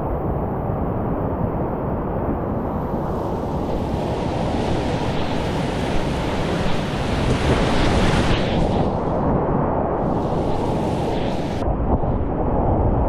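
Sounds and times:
wind buffeting microphone: 0:02.3 - 0:13.0.

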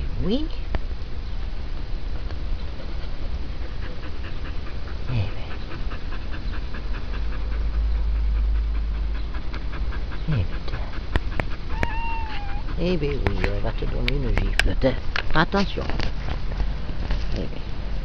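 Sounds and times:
dog panting quickly: 0:02.7 - 0:15.1.

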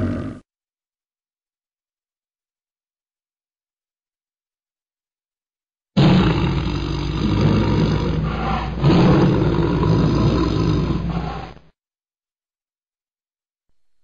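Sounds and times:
tiger roaring: 0:00.0 - 0:00.4, 0:06.0 - 0:11.7.

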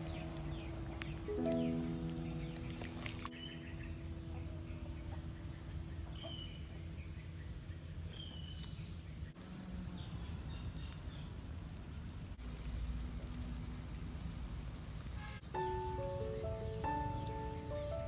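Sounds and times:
bird chirps: 0:00.0 - 0:09.4, 0:15.2 - 0:18.0
pot bubbling: 0:00.0 - 0:15.5
wood fire crackling: 0:00.0 - 0:18.0.

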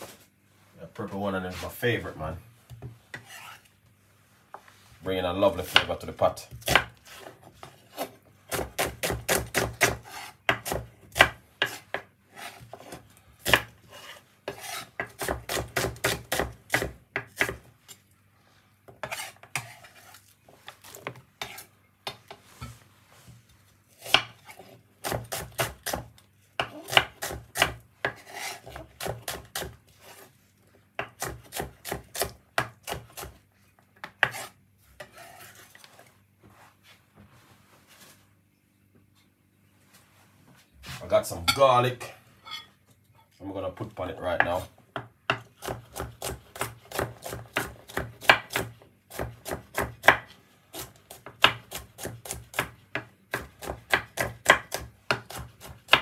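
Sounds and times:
knife chopping on cutting board: 0:05.7 - 0:17.7, 0:18.9 - 0:20.1, 0:24.0 - 0:30.2, 0:31.0 - 0:33.4, 0:34.0 - 0:35.6, 0:44.4 - 0:56.0.

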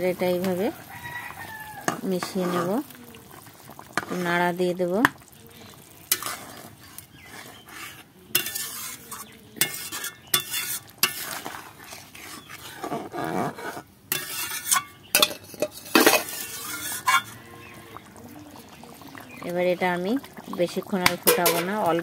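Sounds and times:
curry bubbling: 0:00.0 - 0:22.0
metal spatula scraping a pan: 0:00.1 - 0:02.9, 0:03.9 - 0:22.0
spatula clinking against pan: 0:08.3 - 0:11.2.

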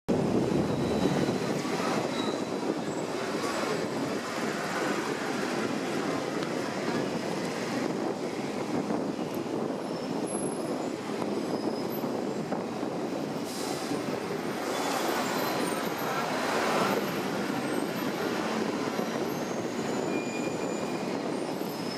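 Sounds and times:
tram wheels rumbling on rails: 0:00.1 - 0:21.9
faint high wheel squeal: 0:00.4 - 0:04.1, 0:09.8 - 0:12.2, 0:14.5 - 0:21.9.

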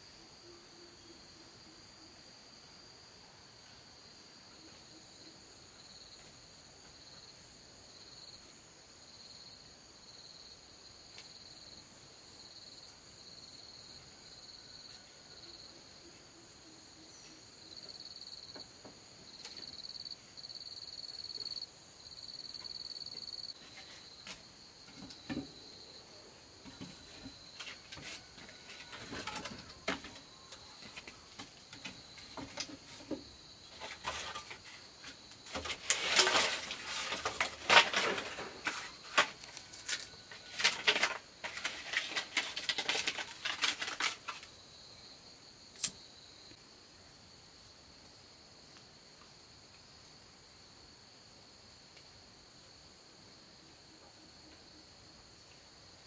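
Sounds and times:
insects chirring: 0:00.0 - 0:56.0
bamboo and sticks clattering: 0:26.5 - 0:44.6.

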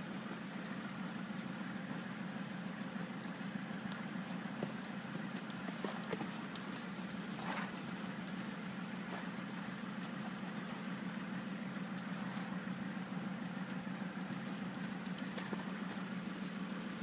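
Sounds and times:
steady low hum: 0:00.0 - 0:17.0
horse hoofbeats on sand: 0:03.9 - 0:12.7, 0:14.3 - 0:17.0.

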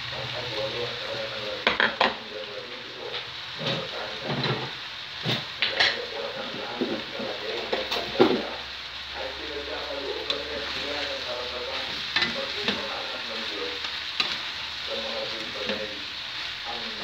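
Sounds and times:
rice sizzling in wok: 0:00.0 - 0:17.0.

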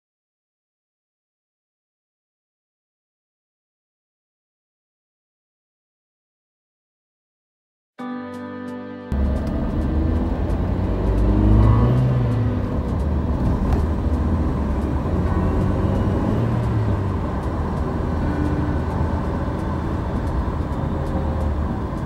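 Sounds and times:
car driving rumble from inside: 0:09.1 - 0:22.0
oncoming car passing: 0:09.1 - 0:22.0.

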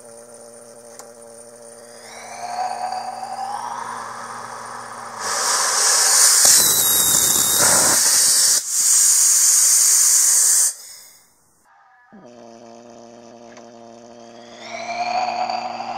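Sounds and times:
gas hissing: 0:00.0 - 0:11.2
rocket engine harsh rushing: 0:01.8 - 0:11.1.

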